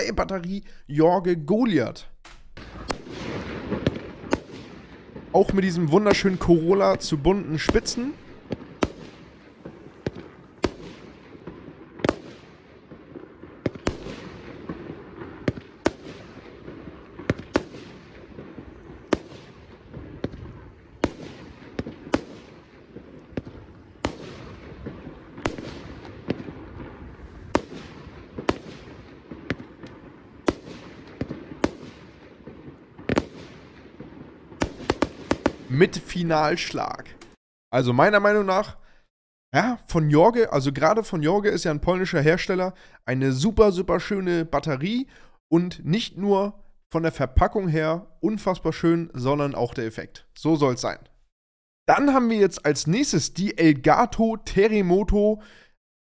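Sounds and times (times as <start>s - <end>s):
firework battery bangs: 2.2s - 5.4s, 7.7s - 35.7s.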